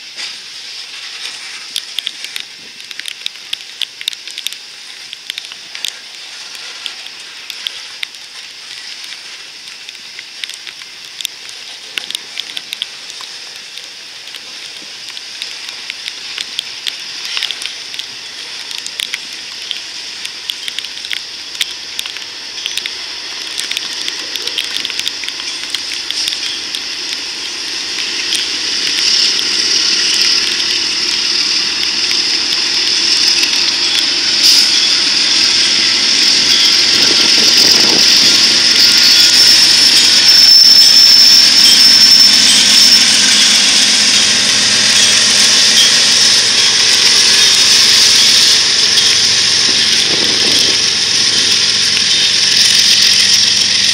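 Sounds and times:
train wheels rolling on rails: 0:00.0 - 0:53.9
diesel locomotive passing: 0:10.3 - 0:53.9
thin high whine: 0:19.4 - 0:53.9.

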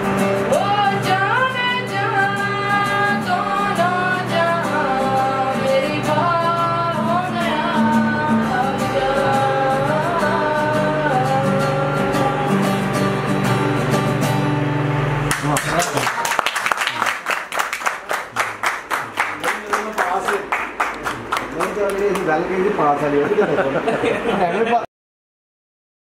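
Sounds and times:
acoustic guitar: 0:00.0 - 0:19.4
boy singing: 0:00.5 - 0:12.8.

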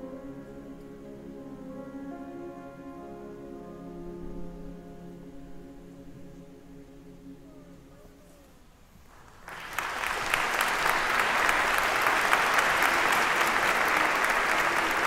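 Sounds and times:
music chord: 0:00.0 - 0:08.4
audience applause: 0:09.1 - 0:15.0.

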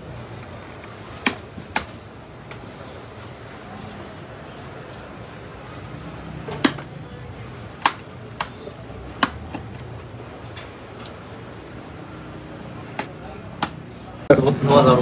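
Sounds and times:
low shop background noise: 0:00.0 - 0:15.0
press-stud snapping clicks: 0:07.8 - 0:08.6.

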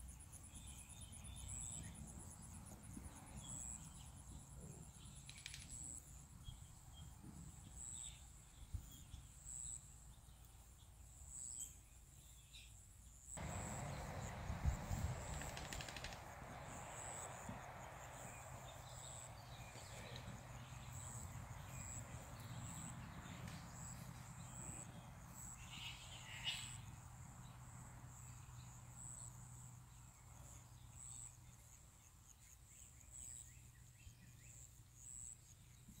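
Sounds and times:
insect chirping: 0:13.0 - 0:35.8.

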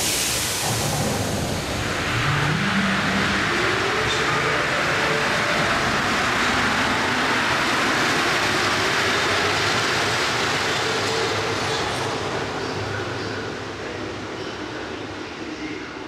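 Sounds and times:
train pulling out rushing: 0:00.0 - 0:15.4.

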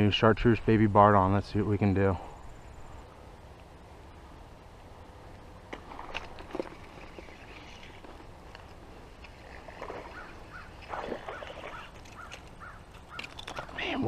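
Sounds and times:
bird squawking: 0:10.0 - 0:14.0.

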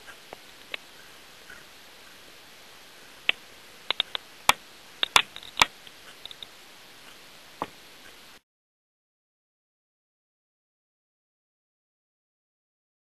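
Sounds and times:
faint steady hiss: 0:00.0 - 0:08.4
sharp clicks and ticks: 0:03.3 - 0:06.5.

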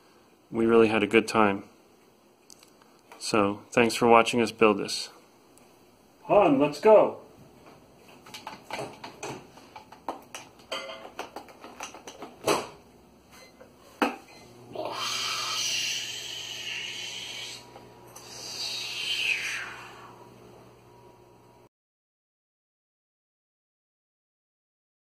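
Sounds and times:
coffee maker parts clattering: 0:08.2 - 0:12.8.

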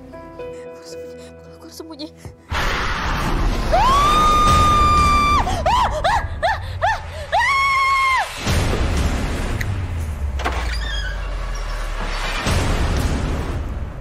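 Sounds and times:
woman screaming: 0:03.7 - 0:08.3.

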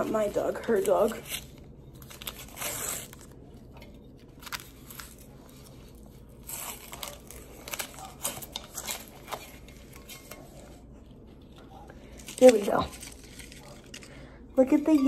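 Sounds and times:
packaging crinkling and tearing: 0:00.2 - 0:10.7, 0:11.4 - 0:14.4.

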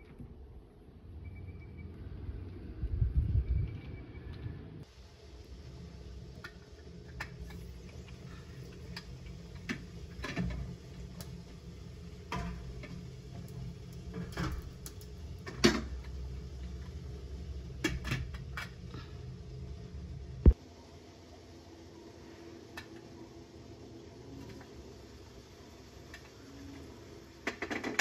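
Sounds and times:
steady low rumble: 0:01.9 - 0:20.6.

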